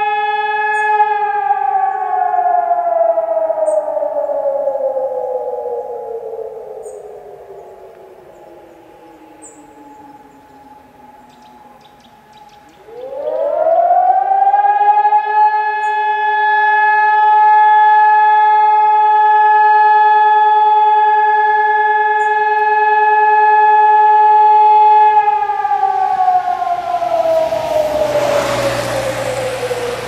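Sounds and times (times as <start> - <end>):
warning siren: 0.0 - 30.0
car approaching: 25.2 - 30.0.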